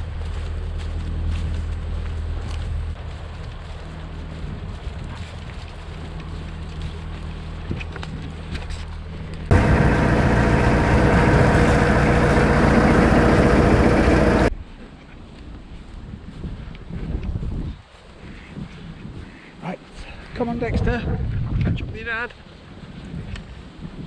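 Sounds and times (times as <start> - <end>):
distant boat engine hum: 9.5 - 14.5
loud rushing noise: 9.5 - 14.5.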